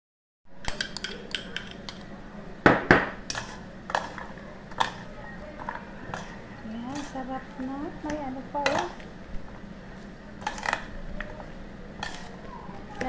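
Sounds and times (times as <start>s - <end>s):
spoon scraping metal bowl: 3.3s - 5.1s, 5.7s - 9.0s, 10.4s - 11.4s, 12.0s - 13.0s.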